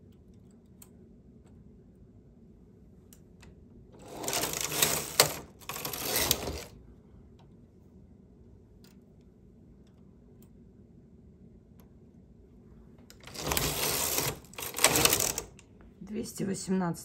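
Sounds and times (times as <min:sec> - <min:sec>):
knitting machine carriage clattering: 0:04.0 - 0:06.8, 0:13.2 - 0:15.6.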